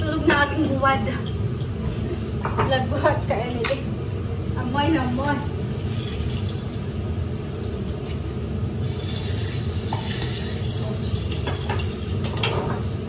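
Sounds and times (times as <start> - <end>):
rushing kitchen noise with low rumble: 0.0 - 13.0
pots and utensils clinking: 9.0 - 13.0.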